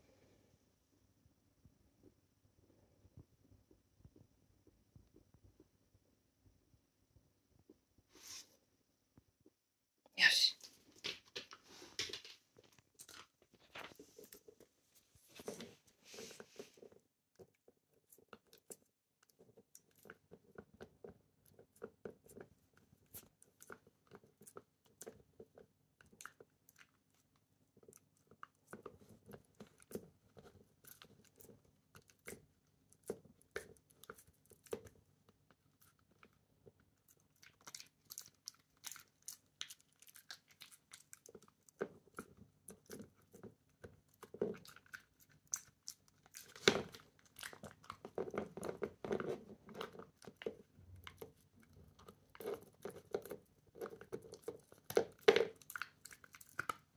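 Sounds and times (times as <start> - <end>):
dog chewing hard chew stick: 35.8 - 56.9.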